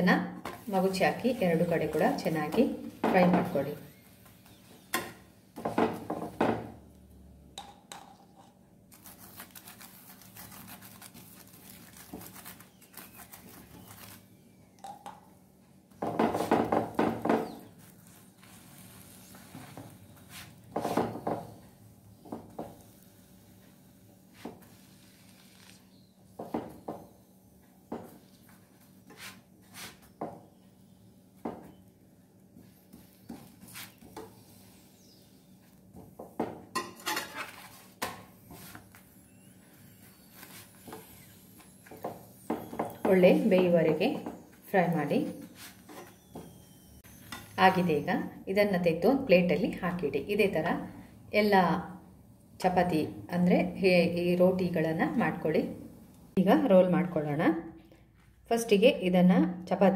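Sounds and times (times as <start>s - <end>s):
metal spatula scraping a pan: 36.8s - 38.1s.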